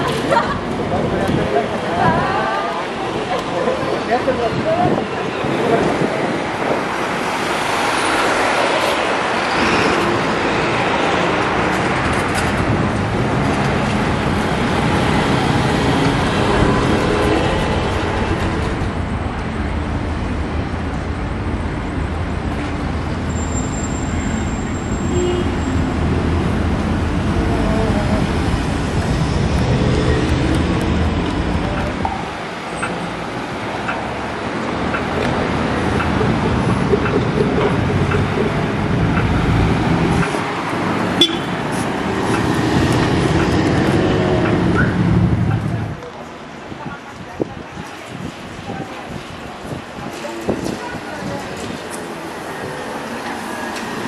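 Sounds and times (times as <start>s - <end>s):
cars and buses passing: 0.0s - 54.0s
high squeal: 23.3s - 25.7s.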